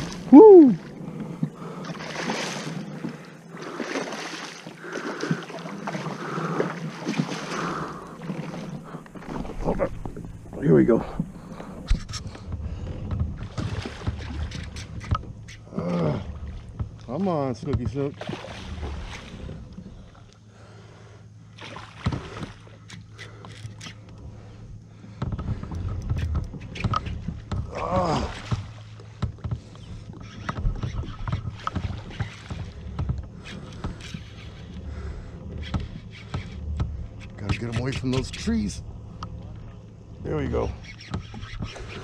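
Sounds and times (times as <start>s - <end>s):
water splashing: 0.0s - 11.7s, 13.4s - 20.3s, 21.5s - 23.4s, 26.8s - 29.2s
fish splashing in water: 1.5s - 9.6s, 18.2s - 19.4s.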